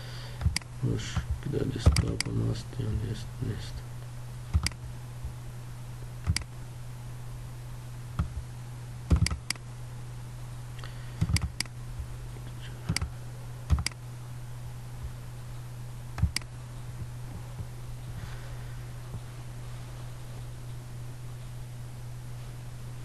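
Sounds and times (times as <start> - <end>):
steady low hum: 0.0 - 23.0
computer mouse clicking: 4.5 - 4.8, 6.2 - 6.5, 9.1 - 9.6, 12.9 - 13.1, 13.7 - 14.0, 16.2 - 16.5.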